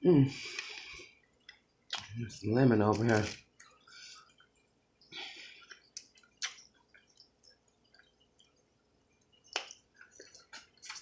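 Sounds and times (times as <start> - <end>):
person eating wet clicks: 0.5 - 4.7, 5.4 - 11.0.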